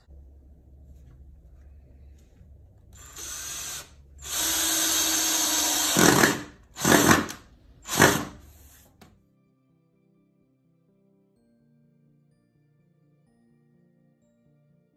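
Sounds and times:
cordless drill driving screws: 3.0s - 8.8s.

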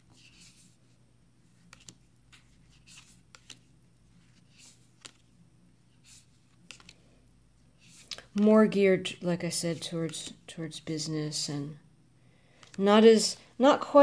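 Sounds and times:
cards flipped and laid down: 1.6s - 3.7s, 4.4s - 5.3s, 6.1s - 7.0s.

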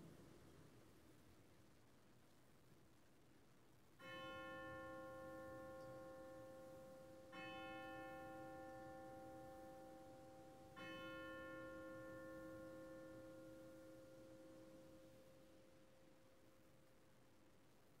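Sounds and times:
faint bell ringing: 4.0s - 17.0s.

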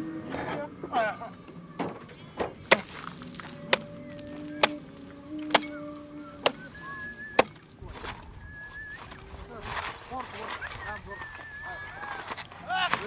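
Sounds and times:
axe chopping ice: 2.6s - 6.8s, 7.4s - 7.6s.

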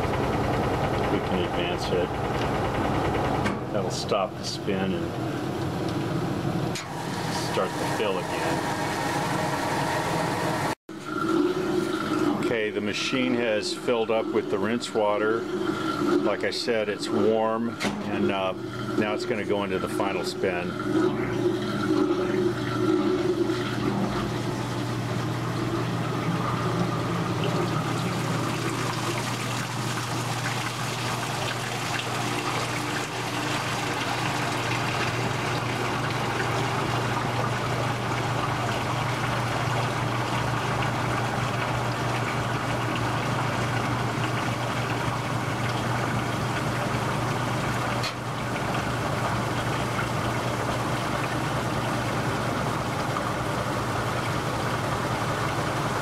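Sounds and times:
washing machine motor humming: 0.0s - 56.0s
water rushing and swirling: 18.1s - 56.0s.

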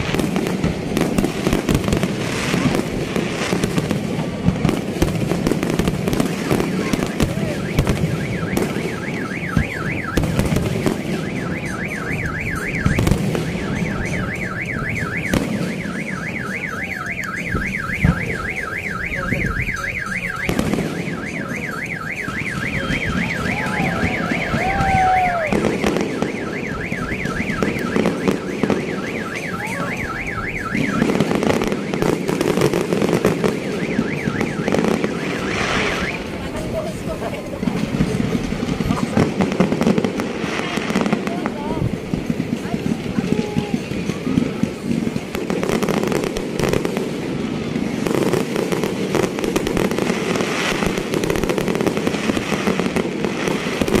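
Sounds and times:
fireworks bangs: 0.0s - 54.0s
vehicle alarm warbling: 5.2s - 54.0s
crowd rumble: 10.4s - 33.6s, 34.2s - 48.0s.

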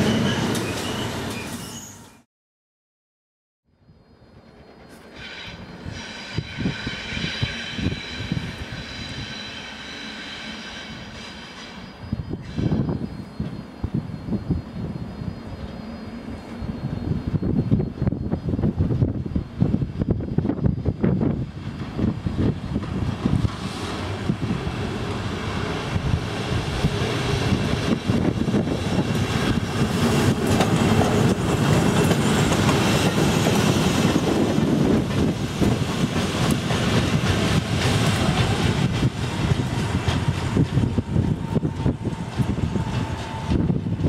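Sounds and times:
train wheels clattering over rails: 26.1s - 44.0s.

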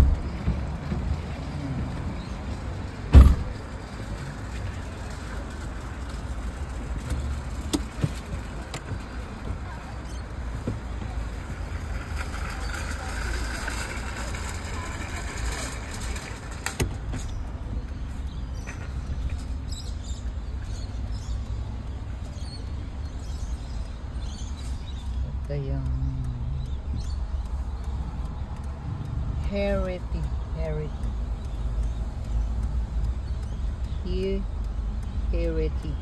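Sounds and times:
car cabin rumble: 3.0s - 3.7s
sharp knock: 3.1s - 3.5s.

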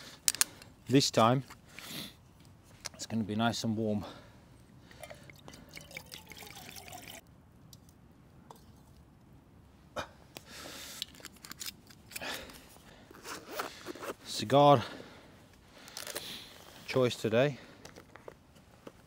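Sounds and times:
liquid pouring into a vessel: 5.0s - 7.2s.

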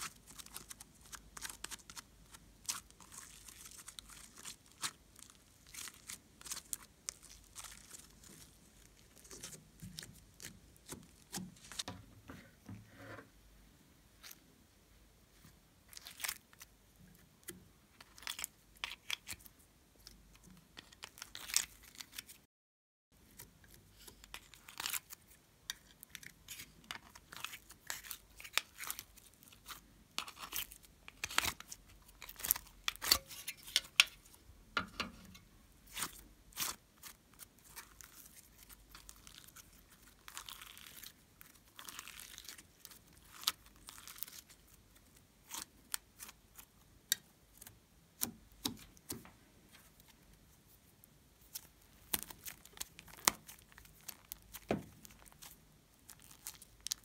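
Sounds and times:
sticky clicks of clay and slime: 45.4s - 50.2s, 51.4s - 57.0s.

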